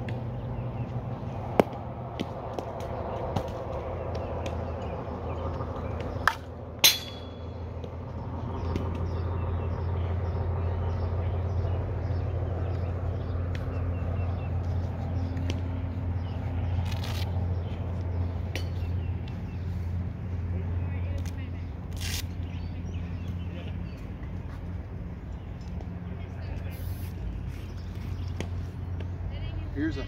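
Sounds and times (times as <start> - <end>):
steady low hum: 0.0 - 30.0
bat cracking against ball: 1.5 - 3.7, 6.0 - 7.5.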